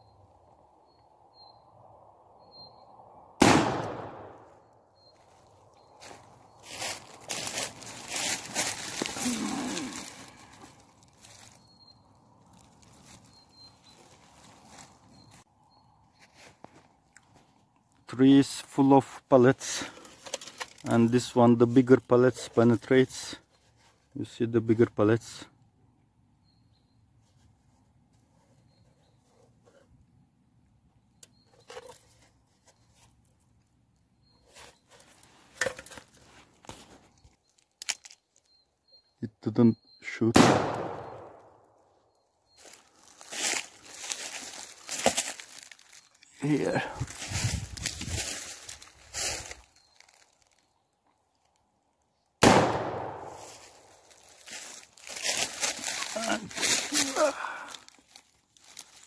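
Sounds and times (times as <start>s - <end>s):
footsteps crunching through dry leaves: 5.2s - 15.4s, 42.5s - 50.8s, 52.8s - 59.0s.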